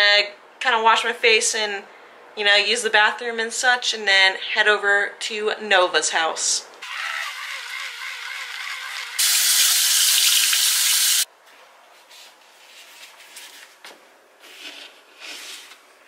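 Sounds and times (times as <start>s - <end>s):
faucet running and splashing: 6.8s - 11.3s.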